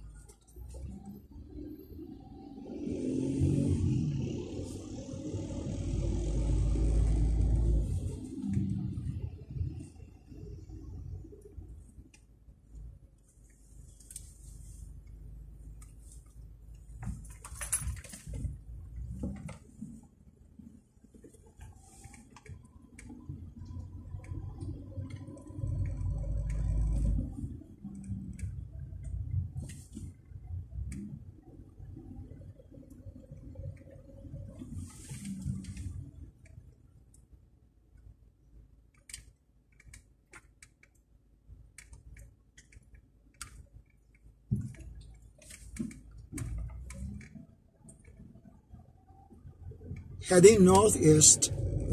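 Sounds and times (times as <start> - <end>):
car engine and road rumble: 0.0 - 51.9
small clicks and rattles: 15.0 - 20.1, 20.8 - 31.3, 38.8 - 50.2.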